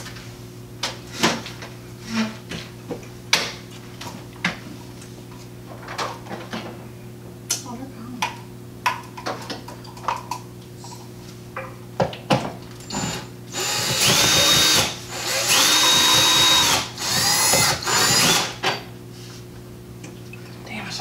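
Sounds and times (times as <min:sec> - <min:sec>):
power drill whining: 0:12.9 - 0:18.6.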